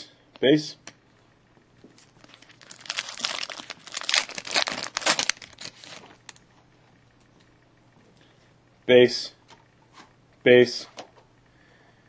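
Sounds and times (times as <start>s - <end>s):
foil wrapper crinkling and tearing: 2.0s - 6.4s.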